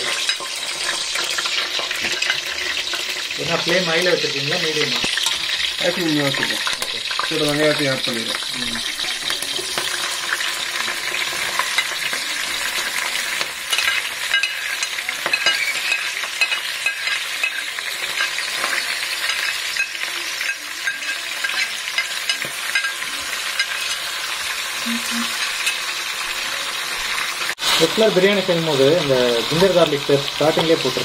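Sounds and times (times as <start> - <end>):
onions sizzling in hot oil: 0.0 - 31.0
spoon scraping and tapping a plate: 13.7 - 23.0.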